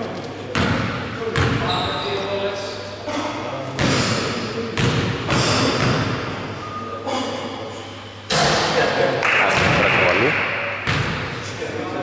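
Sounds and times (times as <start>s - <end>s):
steady hissy noise: 0.0s - 12.0s
basketball bouncing on wooden floor: 10.8s - 11.2s.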